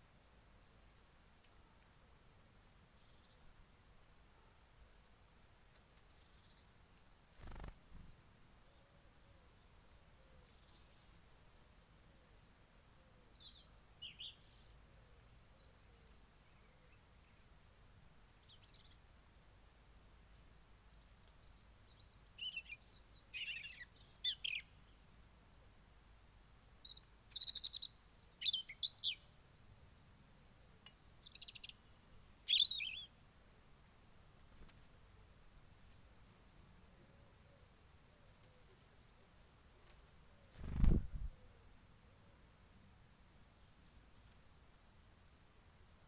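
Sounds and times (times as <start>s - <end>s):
robin singing: 6.1s - 11.8s, 12.9s - 25.0s, 25.9s - 34.0s.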